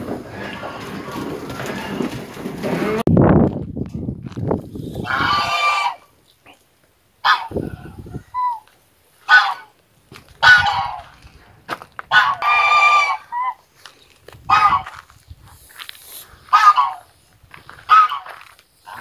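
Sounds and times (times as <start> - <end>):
geese honking: 5.0 - 6.1, 7.2 - 7.7, 9.2 - 9.8, 10.4 - 11.2, 12.1 - 13.6, 14.5 - 15.0, 16.4 - 17.2, 17.8 - 19.0.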